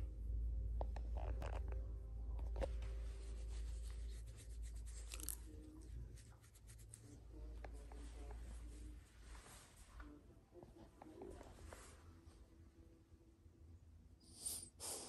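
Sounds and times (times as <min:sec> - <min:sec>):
low handling rumble: 0:00.0 - 0:06.2.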